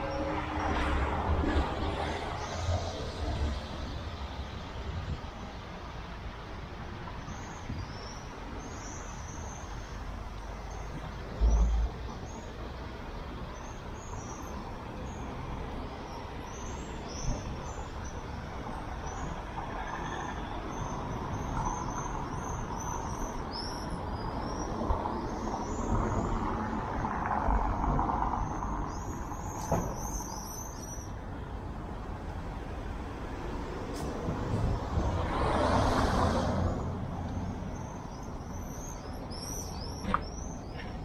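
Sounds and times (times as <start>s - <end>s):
passing vehicle rumble: 0.0s - 7.0s, 8.3s - 41.0s
street hum: 0.0s - 41.0s
vehicle passing: 32.7s - 38.7s
small birds chirping: 37.4s - 41.0s.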